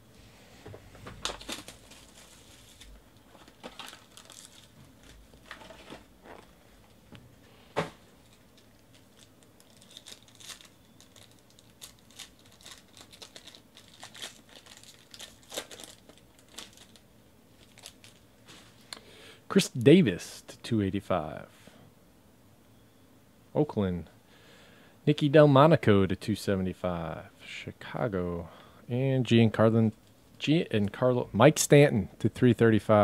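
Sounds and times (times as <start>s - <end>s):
foil wrapper crinkling and tearing: 1.2s - 6.0s, 8.2s - 18.3s.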